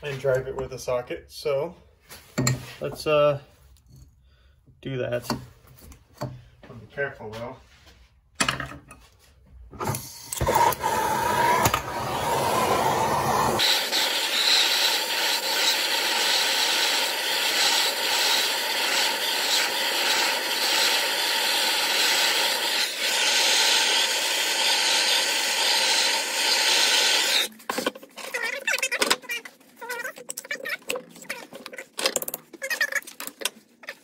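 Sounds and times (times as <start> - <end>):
gas torch hissing: 10.1 - 27.5.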